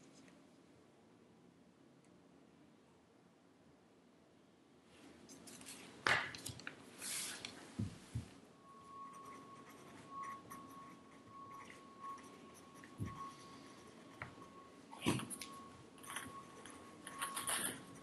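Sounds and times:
thin steady whine: 0.0 - 18.0
pencil writing on paper: 9.2 - 14.5.

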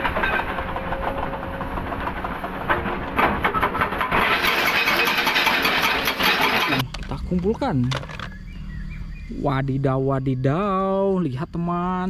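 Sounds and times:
hydraulic breaker hammering rock: 0.0 - 6.9
excavator diesel engine running: 0.0 - 7.4.

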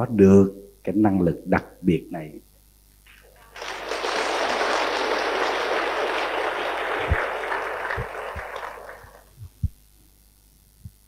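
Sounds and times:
audience applauding: 3.1 - 9.4
dull low thumps: 9.4 - 9.8.

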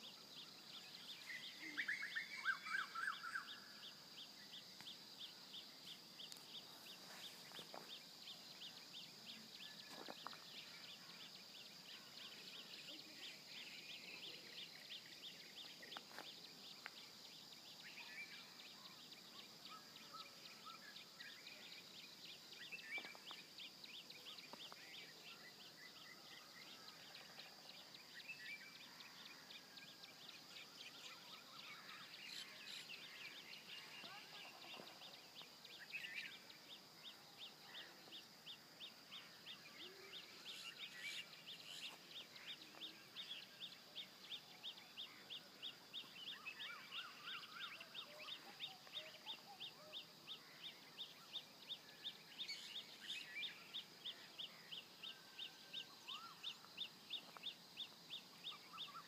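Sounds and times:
bird chirps and calls: 30.9 - 36.5.

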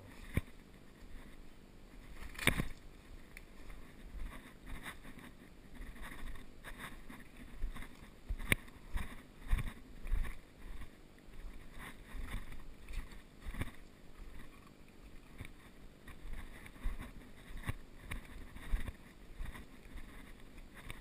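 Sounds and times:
camera handling noise: 2.2 - 2.8.

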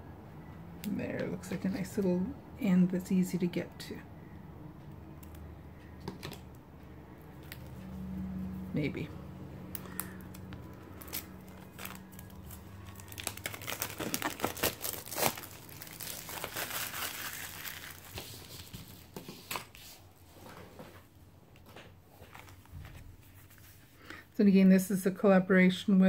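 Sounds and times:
plastic packaging tearing and crinkling: 9.8 - 19.8.

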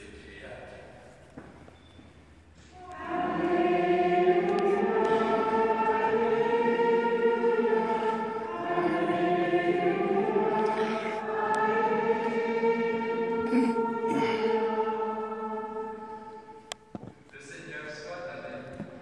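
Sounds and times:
choir singing a hymn: 2.6 - 16.9.

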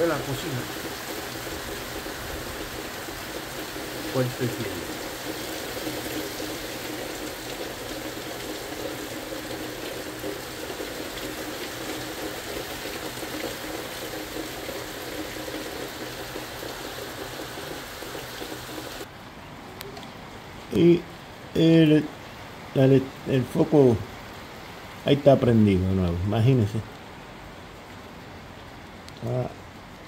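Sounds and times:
heavy rain falling: 0.0 - 19.1.

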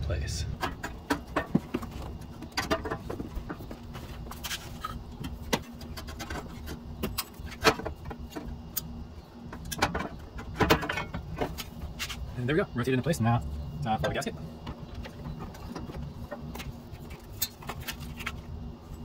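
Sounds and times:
metal exhaust pipes clanking: 0.0 - 8.8, 9.5 - 12.3.

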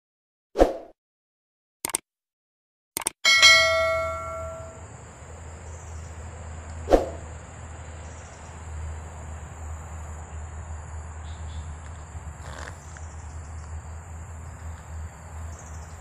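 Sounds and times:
low steady hum: 3.4 - 6.7.

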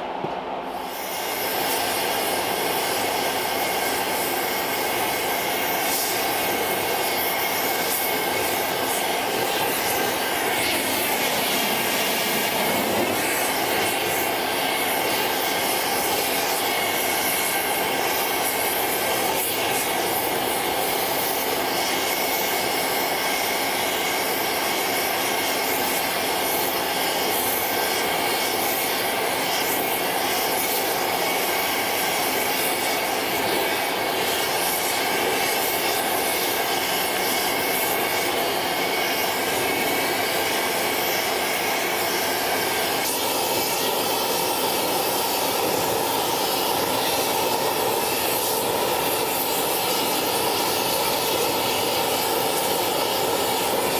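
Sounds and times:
gas torch flame roaring: 0.0 - 53.9.

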